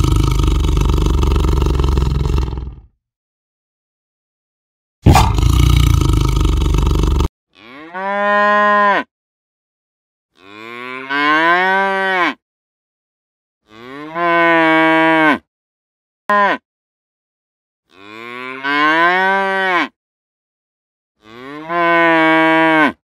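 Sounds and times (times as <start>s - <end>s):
tiger roaring: 0.0s - 2.9s, 5.1s - 7.3s
cattle mooing: 7.6s - 9.1s, 10.4s - 12.4s, 13.7s - 15.4s, 17.9s - 19.9s, 21.2s - 23.0s.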